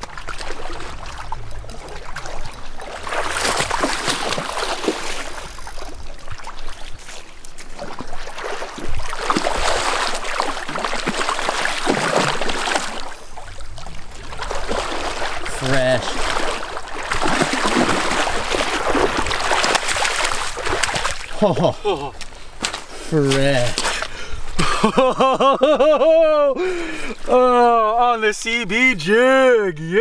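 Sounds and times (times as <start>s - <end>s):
fish splashing at the surface: 0.0s - 21.4s
river current running: 0.0s - 25.0s.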